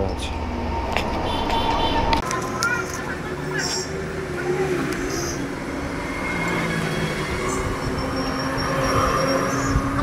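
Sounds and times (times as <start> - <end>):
street traffic: 0.0 - 10.0.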